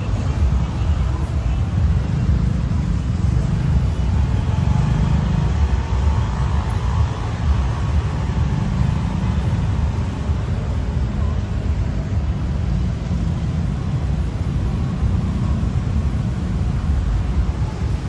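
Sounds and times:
city road traffic rumble: 0:00.0 - 0:18.0.

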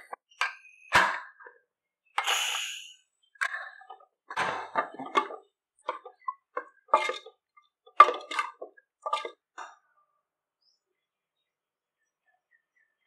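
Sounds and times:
ladle scraping and squelching: 0:04.7 - 0:09.4.

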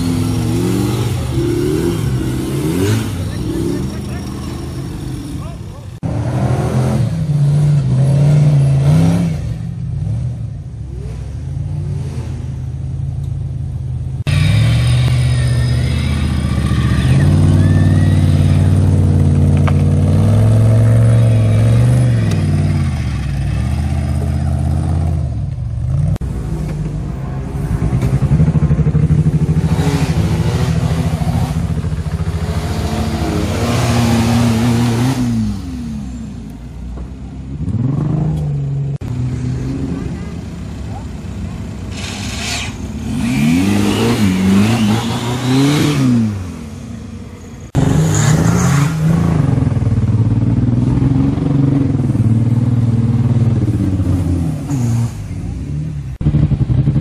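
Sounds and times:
buggy engines revving hard: 0:00.0 - 0:13.1, 0:14.2 - 0:36.7, 0:37.3 - 0:57.0.

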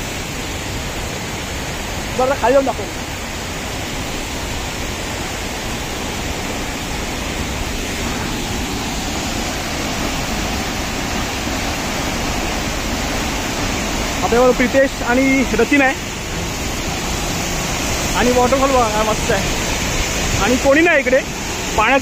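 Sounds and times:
waterfall rushing: 0:00.0 - 0:22.0.

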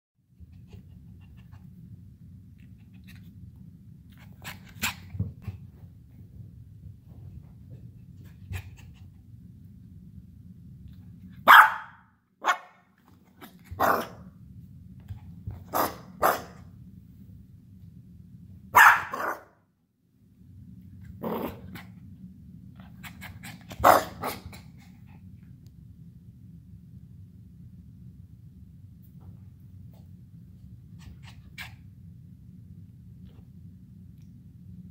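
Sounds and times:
puppy barking: 0:11.4 - 0:12.8, 0:13.7 - 0:14.2, 0:15.7 - 0:16.6, 0:18.7 - 0:19.6, 0:23.8 - 0:24.4.

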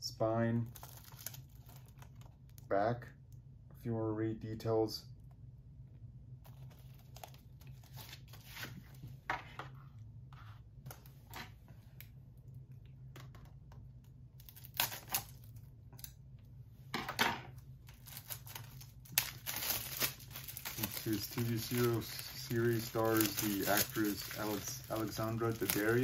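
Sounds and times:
faint low hum: 0:00.0 - 0:26.0
plastic wrap tearing and crinkling: 0:00.7 - 0:02.6, 0:06.4 - 0:08.8, 0:14.4 - 0:15.7, 0:17.8 - 0:26.0.

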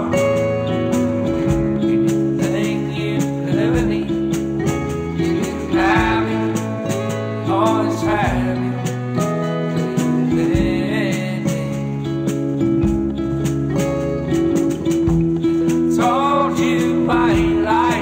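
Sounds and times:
band playing rock song: 0:00.0 - 0:18.0.

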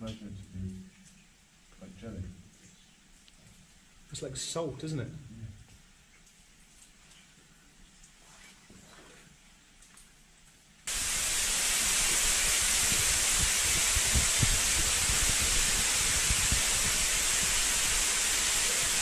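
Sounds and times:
water spraying and falling: 0:10.9 - 0:19.0
wind buffeting microphone: 0:10.9 - 0:19.0.

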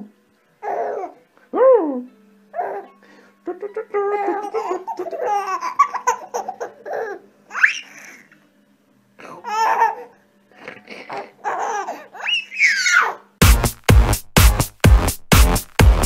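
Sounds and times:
baby laughing and squealing: 0:00.6 - 0:01.2, 0:04.1 - 0:08.4, 0:09.2 - 0:10.1, 0:10.9 - 0:13.3.

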